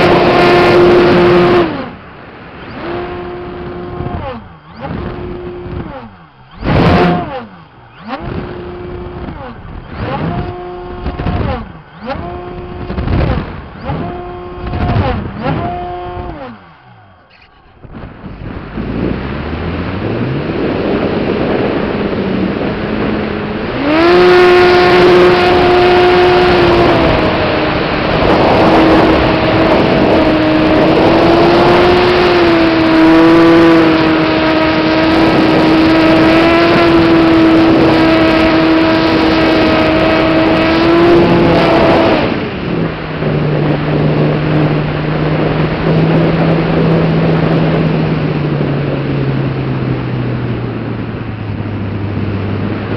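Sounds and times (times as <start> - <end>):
wind rush: 0.0 - 52.9
model plane motor and propeller: 2.7 - 18.4, 21.0 - 42.4.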